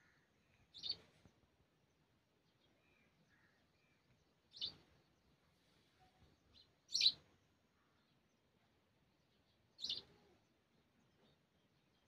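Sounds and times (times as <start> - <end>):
small bird chirping: 0.6 - 1.2, 3.8 - 5.0, 6.5 - 7.3, 9.8 - 12.0.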